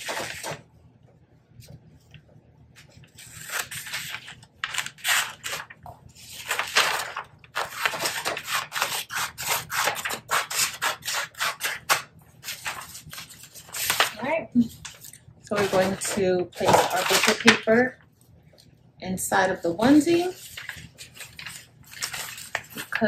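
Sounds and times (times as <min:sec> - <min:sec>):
paper crackling and rustling: 0:00.0 - 0:00.7, 0:01.6 - 0:18.0, 0:19.8 - 0:23.0
scissors snipping paper: 0:03.1 - 0:05.7, 0:06.4 - 0:14.2.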